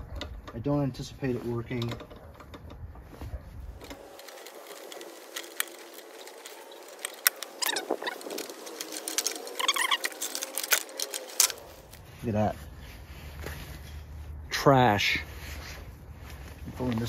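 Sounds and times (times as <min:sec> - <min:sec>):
metal squeaking: 0:03.8 - 0:12.0
pliers clicking and scraping on metal: 0:03.8 - 0:12.0.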